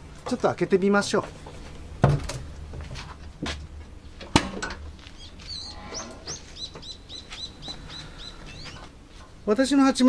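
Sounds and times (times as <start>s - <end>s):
sharp metal clunks: 4.2s - 4.9s
small bird chirping: 5.1s - 9.4s.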